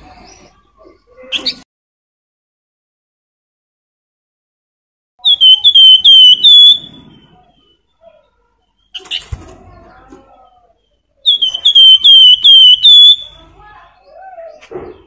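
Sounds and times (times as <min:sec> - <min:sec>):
bird singing fluting whistles: 0:05.2 - 0:07.2, 0:11.3 - 0:13.4.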